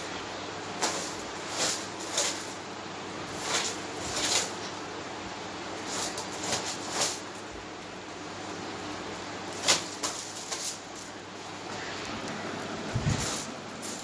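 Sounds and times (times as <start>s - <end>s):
hand broom swishing on fabric: 0.8s - 2.6s, 3.2s - 4.7s, 5.8s - 7.3s.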